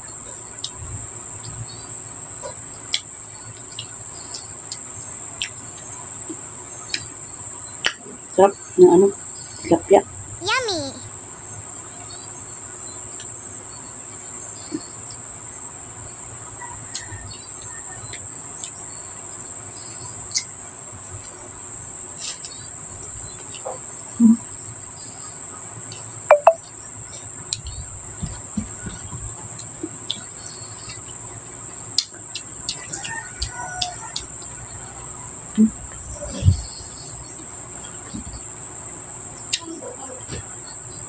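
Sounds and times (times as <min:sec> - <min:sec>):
insects droning: 0:00.0 - 0:41.0
eating clicks and smacks: 0:02.9 - 0:07.1, 0:29.6 - 0:31.1, 0:31.9 - 0:34.4
short chirp: 0:26.3 - 0:26.6.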